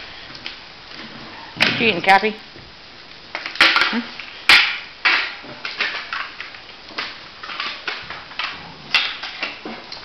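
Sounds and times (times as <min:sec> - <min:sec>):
dogs scuffling on a hard floor: 0:03.4 - 0:10.0.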